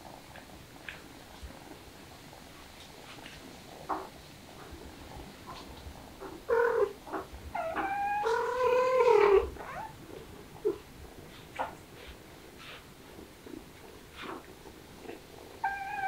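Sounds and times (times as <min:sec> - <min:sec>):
cat meowing: 0:15.6 - 0:16.0.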